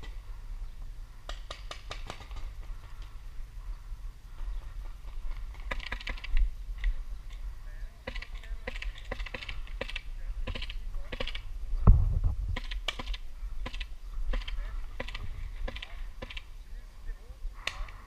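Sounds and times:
paintball markers firing pops: 1.2 - 2.6, 12.6 - 16.5.

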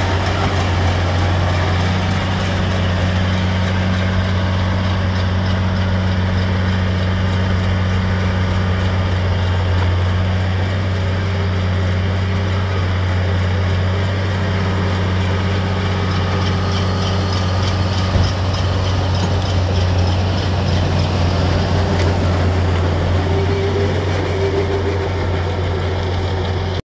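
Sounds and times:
baler machinery rattle: 0.0 - 26.8
tractor engine hum: 0.0 - 26.8
machinery knock: 16.0 - 23.1.

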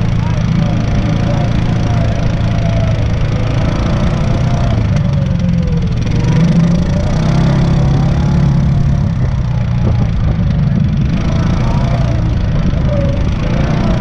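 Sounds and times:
off-road vehicle engine running: 0.0 - 14.0.

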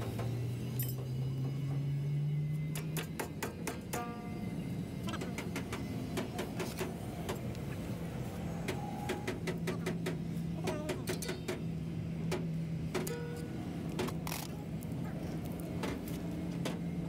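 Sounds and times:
metal bar clinking on brake: 0.7 - 1.2, 13.0 - 13.5.

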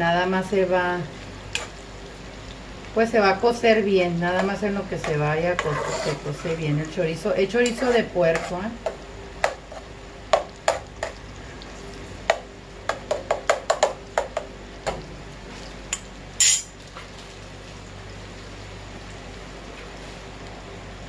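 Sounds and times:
sausage sizzling in fat: 0.0 - 21.0
metal spoon scraping pot: 5.5 - 6.7.

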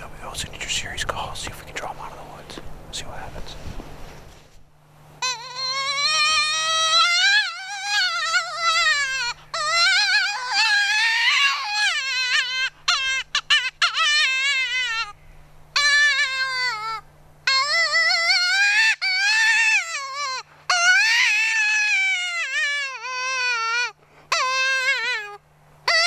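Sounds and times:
predator call wailing cries: 5.2 - 26.0.

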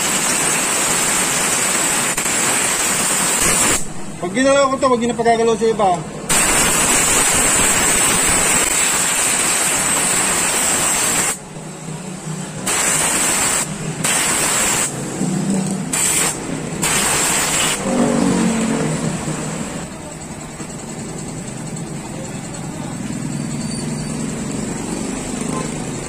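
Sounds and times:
pressurised jet hissing: 2.0 - 4.3, 6.3 - 11.6, 12.6 - 15.2, 15.9 - 18.0.

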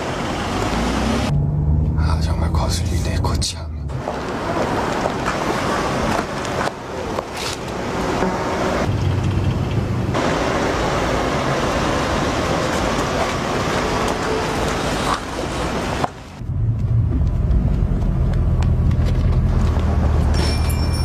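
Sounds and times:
tyres rolling on road: 0.0 - 2.2, 3.9 - 21.0
car engine: 0.0 - 20.5.

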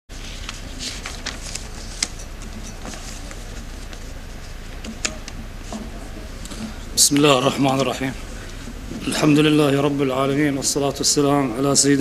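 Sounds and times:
steady low hum: 0.1 - 12.0
papers rustling and clicking: 0.2 - 7.3.

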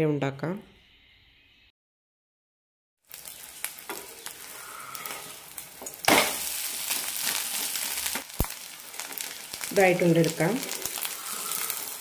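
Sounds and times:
omelette sizzling in oil: 3.0 - 12.0.

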